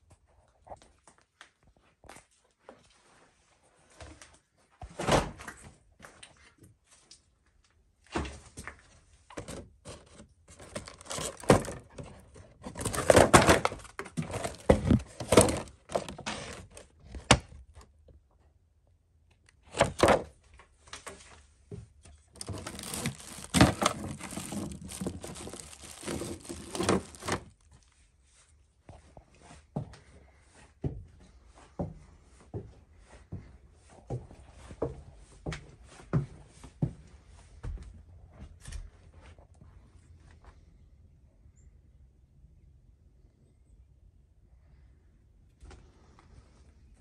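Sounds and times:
hands rummaging among objects: 9.4s - 16.9s, 22.3s - 27.7s.

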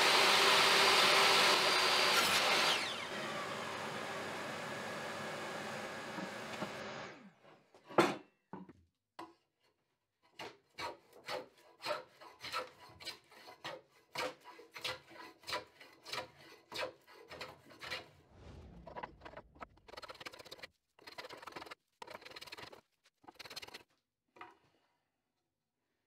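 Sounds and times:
hand plane scraping wood: 10.3s - 18.1s, 19.9s - 23.8s.

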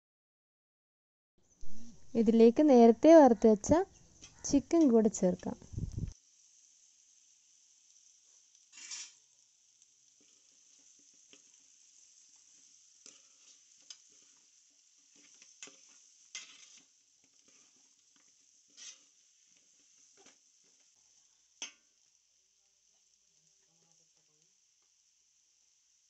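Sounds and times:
low steady sizzle: 1.4s - 26.0s
metal spoon scraping pan: 8.7s - 9.2s, 15.1s - 17.8s, 18.7s - 19.2s.

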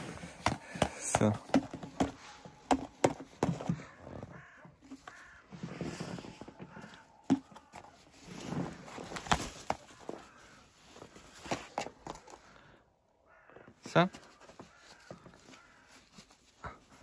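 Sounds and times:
raven pecking at glove: 0.0s - 12.7s, 13.3s - 17.0s
snow crunching and rustling: 5.2s - 6.6s, 8.2s - 11.7s.

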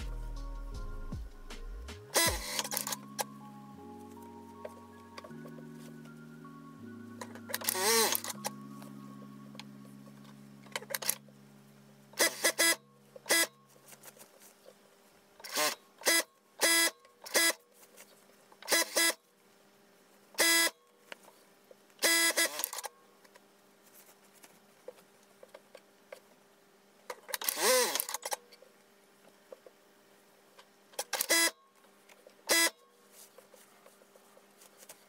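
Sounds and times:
sewing machine whining in bursts: 12.2s - 13.5s.

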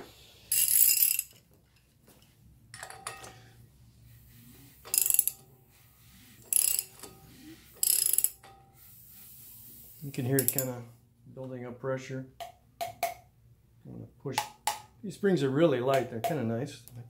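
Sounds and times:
hand ratchet clicking: 0.5s - 1.4s, 4.8s - 5.4s, 6.4s - 7.2s, 7.8s - 8.5s, 10.4s - 10.7s.

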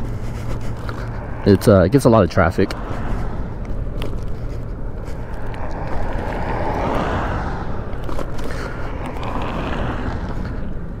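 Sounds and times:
road traffic: 0.0s - 11.0s
vehicle passing: 0.0s - 11.0s
wind rush on microphone: 2.7s - 11.0s.

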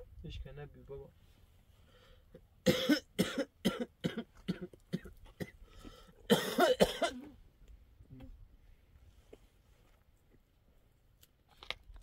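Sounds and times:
person coughing: 2.6s - 5.6s, 6.3s - 7.4s.

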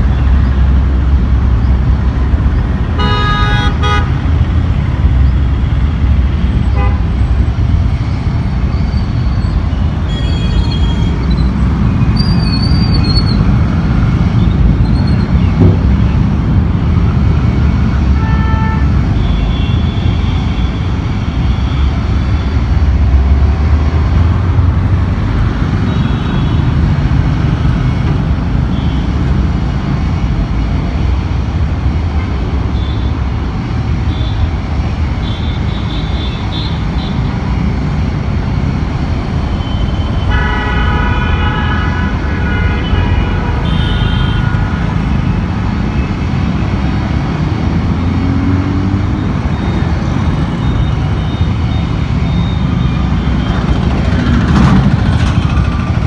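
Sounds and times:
cars and motorcycles passing: 0.0s - 56.0s
car horn toots: 18.2s - 19.9s, 40.2s - 44.9s.

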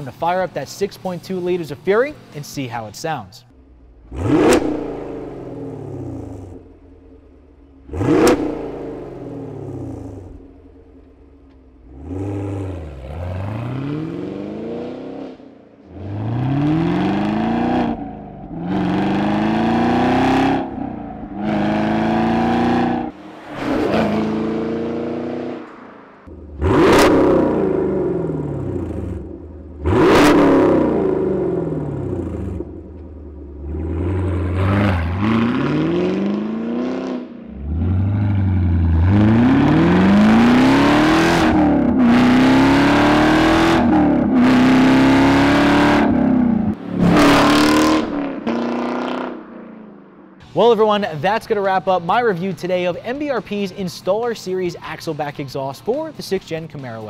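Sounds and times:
car engine revving: 3.5s - 50.6s
car accelerating through gears: 4.0s - 6.7s, 7.8s - 10.4s, 11.8s - 49.4s.

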